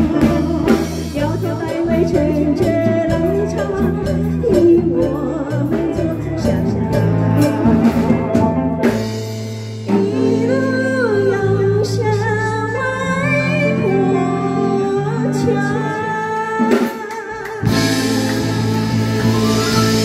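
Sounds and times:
woman singing into microphone: 0.0s - 8.0s, 9.9s - 20.0s
drum beats: 0.0s - 10.7s, 16.5s - 20.0s
electric keyboard: 0.0s - 16.6s, 17.6s - 20.0s
guitars: 0.0s - 20.0s.

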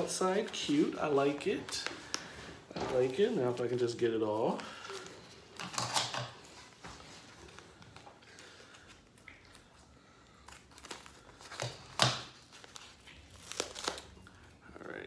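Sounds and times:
tape peeling: 10.4s - 14.3s
paper wrapping crinkling: 10.4s - 14.5s.

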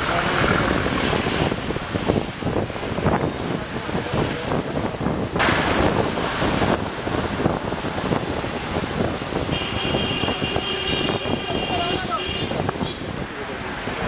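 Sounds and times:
road noise on wet street: 0.0s - 14.0s
wind noise on microphone: 0.0s - 14.0s
high squeal: 3.4s - 4.2s.

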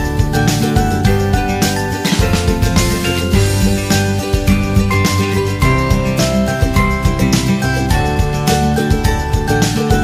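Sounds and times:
melodic music over a beat: 0.0s - 10.0s.

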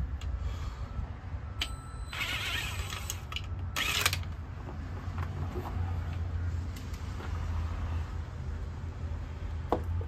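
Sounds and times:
cordless screwdriver running: 2.1s - 4.3s.

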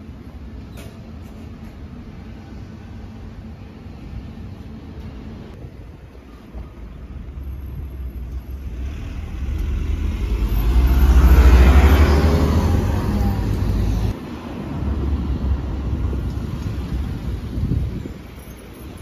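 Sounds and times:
road vehicle passing: 7.1s - 18.3s.

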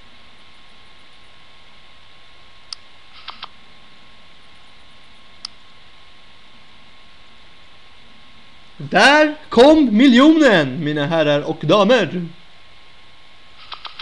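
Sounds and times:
faint steady tone: 0.0s - 9.7s
sharp clicks: 13.6s - 14.0s.

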